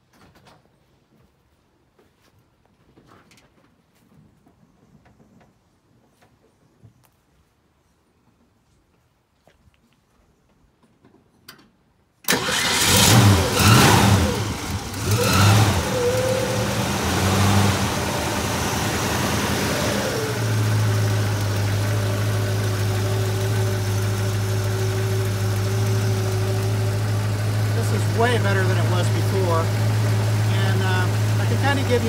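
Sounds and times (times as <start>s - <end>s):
car engine starting and revving: 12.3s - 32.0s.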